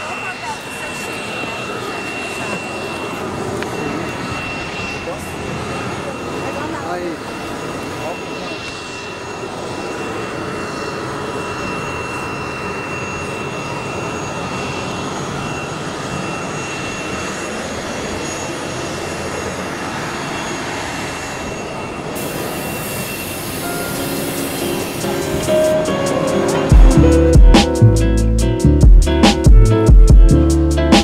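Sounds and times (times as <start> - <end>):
thin high whine: 0.0 - 28.3
aircraft engines running: 0.0 - 31.0.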